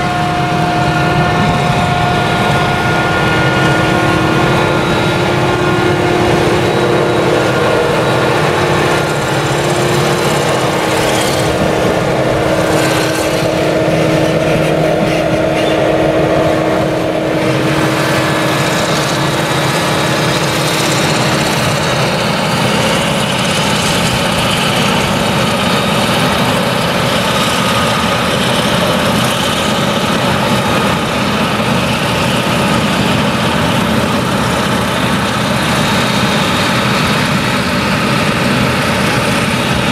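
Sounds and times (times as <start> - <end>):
forage harvester engine drone: 0.0 - 39.9
steady hum: 0.0 - 39.9
tractor running: 0.0 - 39.9.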